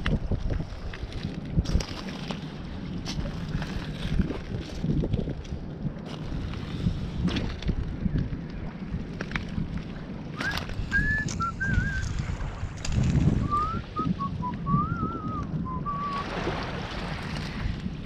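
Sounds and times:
wind rumble on microphone: 0.0 - 18.0
person whistling a tune: 10.4 - 12.1, 13.4 - 16.2.

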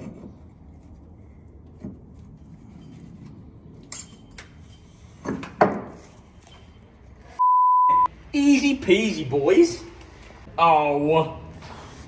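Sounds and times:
metal tools clinking: 3.8 - 5.2.

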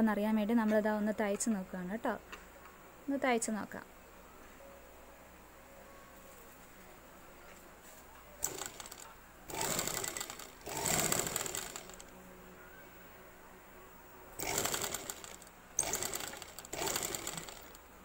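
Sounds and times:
sewing machine stitching: 8.4 - 12.1, 14.4 - 17.8.

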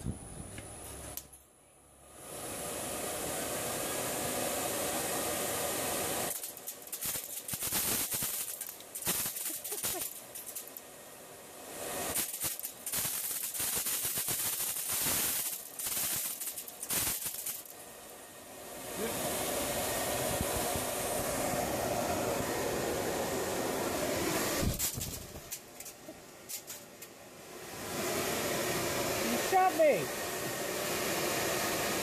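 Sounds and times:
electric blower running: 2.0 - 10.8, 14.8 - 26.4, 27.3 - 32.0
projectiles rattling in blower: 6.3 - 10.8, 24.5 - 27.0.

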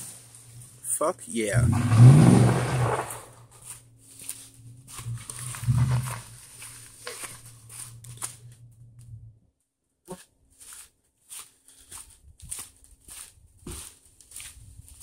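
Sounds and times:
car engine running: 1.5 - 3.6, 4.6 - 9.1
footsteps on gravel and leaves: 2.5 - 8.4, 10.5 - 15.0.

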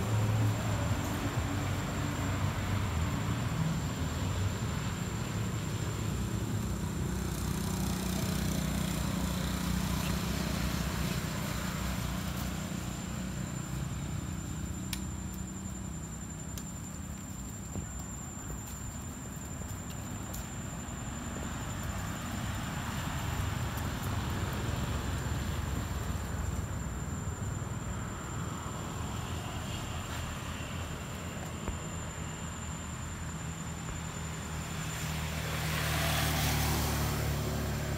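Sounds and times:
road traffic rumble: 0.0 - 37.9
faint clicks: 14.9 - 15.4.

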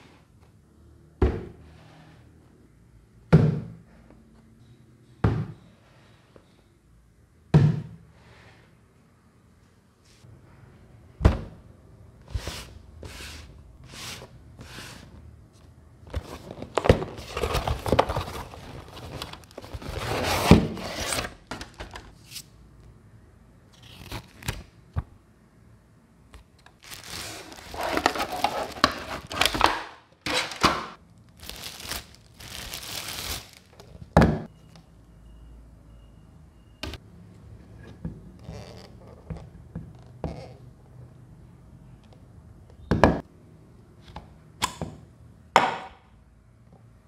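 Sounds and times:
packaging crinkling and rustling: 16.1 - 22.0, 26.8 - 34.2.

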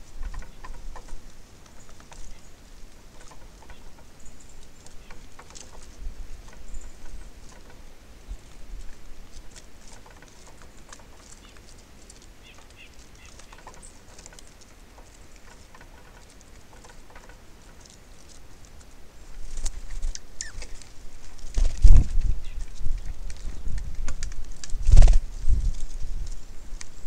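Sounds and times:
birds pecking at seed: 0.0 - 27.0
faint high bird chirps: 19.8 - 20.8.

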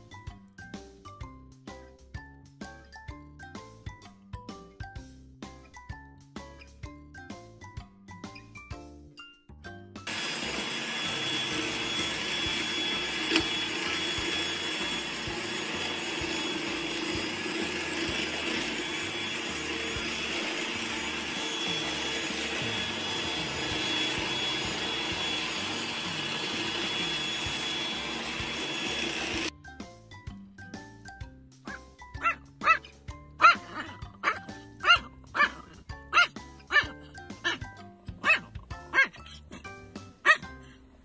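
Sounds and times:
whirring motor with hiss: 10.1 - 29.5.

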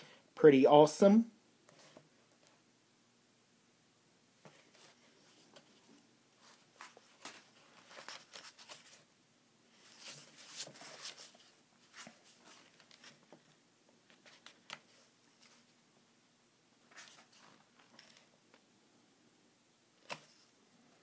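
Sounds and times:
book pages turning: 4.4 - 9.1, 9.8 - 15.7, 16.9 - 18.6, 20.0 - 20.5.

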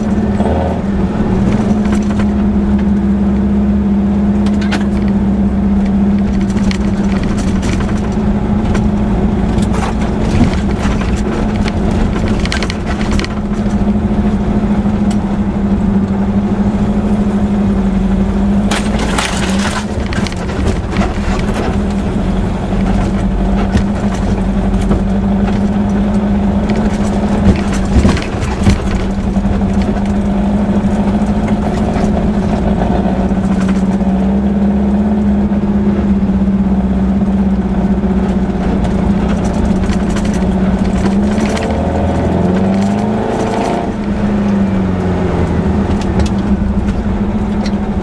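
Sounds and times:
car engine running under load: 0.0 - 48.0
sharp knocks of car jolting: 26.7 - 30.2.

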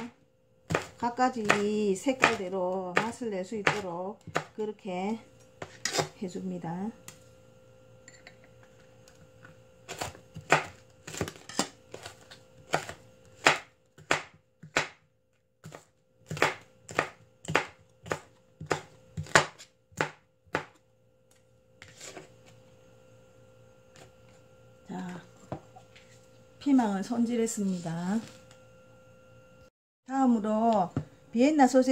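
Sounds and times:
knife chopping on cutting board: 0.7 - 4.6, 5.6 - 6.2, 9.9 - 15.0, 15.6 - 20.8.

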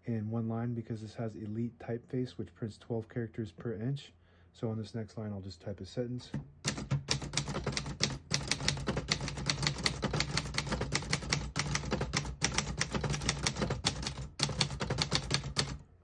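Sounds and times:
typewriter key strikes: 6.3 - 15.8.

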